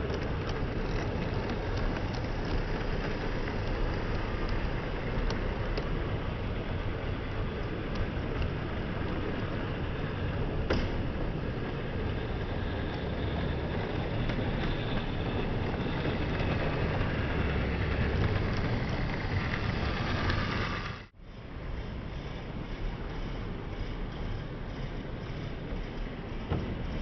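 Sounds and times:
model train rumbling along track: 0:00.0 - 0:27.0.

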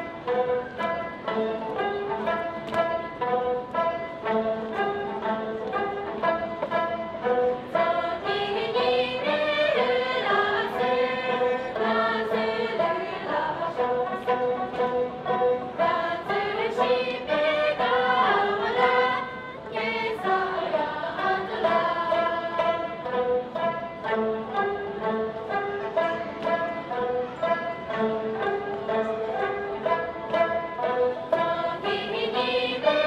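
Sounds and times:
lute strumming: 0:00.0 - 0:33.0
women singing in unison: 0:07.6 - 0:14.8, 0:15.6 - 0:23.3, 0:31.3 - 0:33.0.

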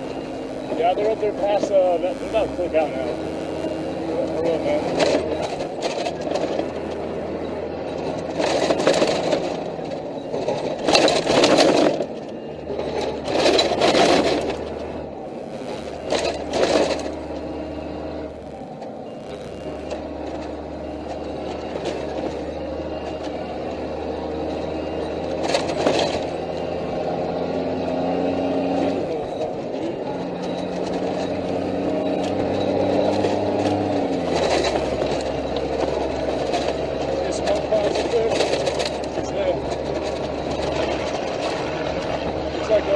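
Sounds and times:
vehicle engine drone: 0:00.0 - 0:42.9
vehicle jolts: 0:00.0 - 0:42.9
turret gear rattling: 0:04.5 - 0:14.9, 0:30.4 - 0:42.9.

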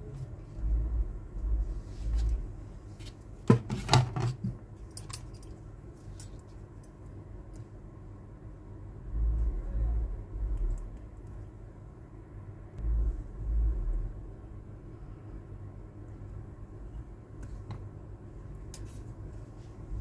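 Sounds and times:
low thuds: 0:12.8 - 0:14.4.

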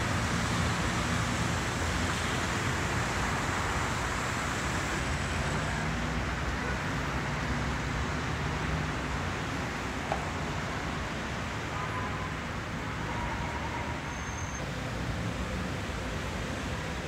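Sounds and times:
road traffic rumble: 0:00.0 - 0:17.0.

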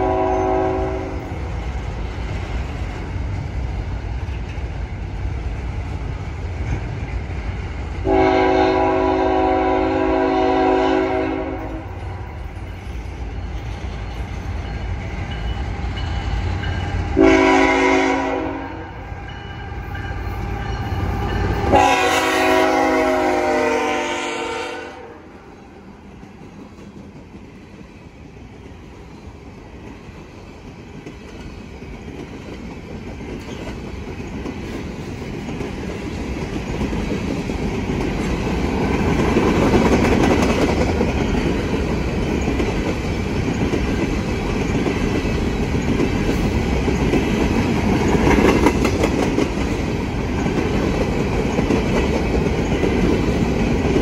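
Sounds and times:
locomotive horn blasts: 0:00.0 - 0:01.2, 0:08.0 - 0:11.9, 0:17.2 - 0:19.0, 0:21.6 - 0:25.3.

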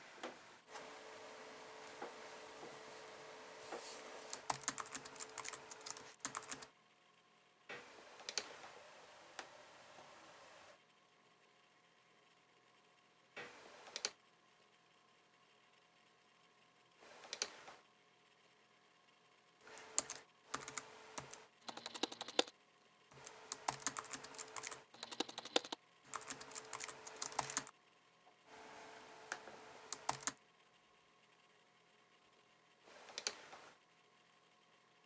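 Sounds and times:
laptop keyboard typing: 0:04.2 - 0:06.7, 0:19.7 - 0:22.5, 0:23.1 - 0:27.7, 0:29.9 - 0:30.4.

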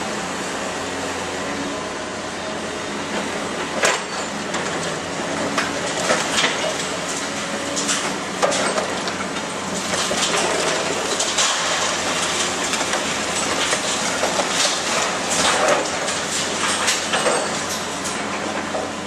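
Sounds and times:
excavator running: 0:00.0 - 0:19.0
concrete cracking and debris falling: 0:09.8 - 0:17.6.

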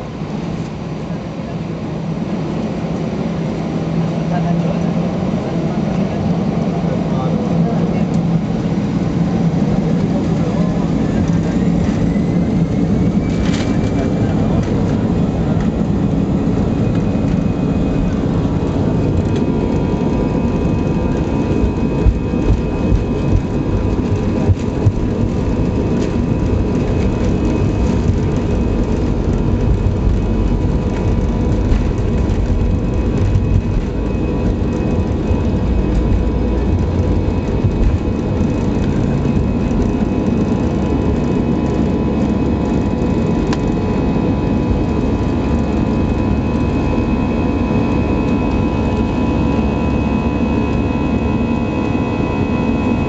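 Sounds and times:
jet engines rumbling: 0:00.0 - 0:53.0.

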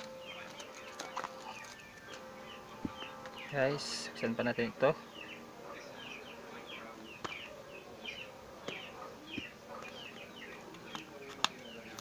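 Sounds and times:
cardboard parcel clicks: 0:00.0 - 0:02.2, 0:10.7 - 0:12.0.

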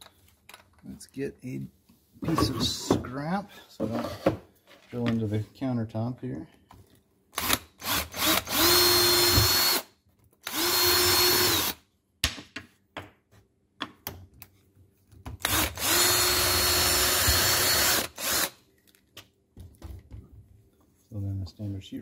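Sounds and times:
power drill whining: 0:07.4 - 0:11.8, 0:15.4 - 0:18.6.

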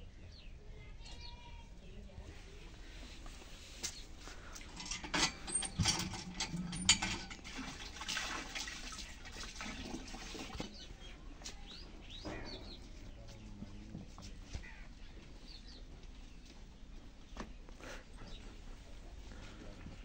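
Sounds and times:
hand pump handle clanking: 0:04.5 - 0:08.5
water gushing into trough: 0:04.7 - 0:10.7.

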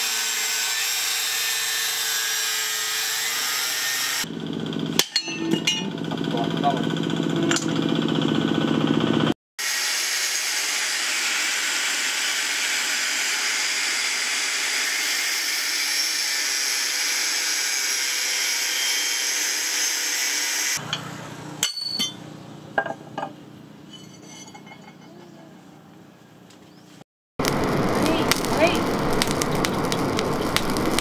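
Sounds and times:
angle grinder cutting steel: 0:00.0 - 0:04.3, 0:04.9 - 0:20.8.

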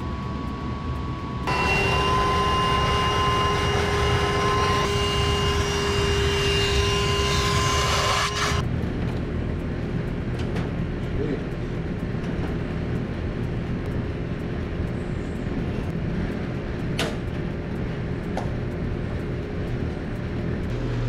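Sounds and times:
shop vacuum motor whining: 0:01.4 - 0:08.6, 0:20.7 - 0:21.0.

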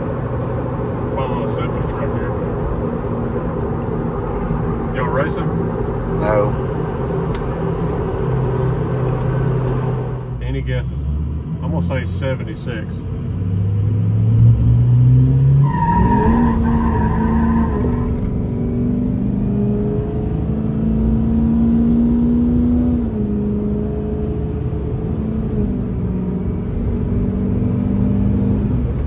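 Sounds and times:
diesel engine accelerating: 0:00.0 - 0:29.0
road noise: 0:00.0 - 0:29.0.

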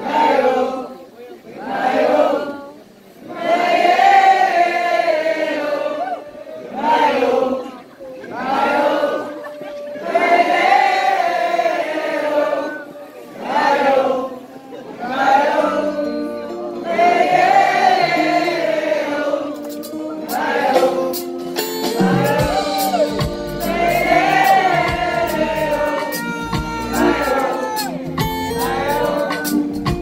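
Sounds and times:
crowd singing a wordless melody: 0:00.0 - 0:30.0
bass notes: 0:22.0 - 0:27.4, 0:28.0 - 0:30.0.

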